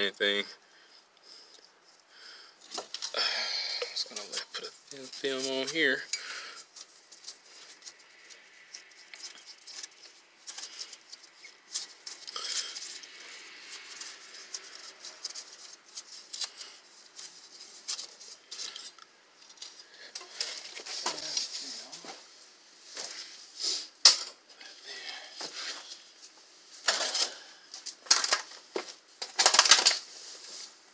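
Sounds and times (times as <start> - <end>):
small clicks and rubbing: 4.1 - 21.5.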